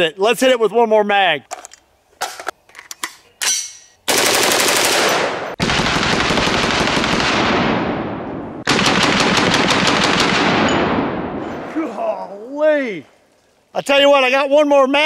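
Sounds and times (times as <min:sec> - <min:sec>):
rapid automatic rifle fire: 0:04.1 - 0:11.3.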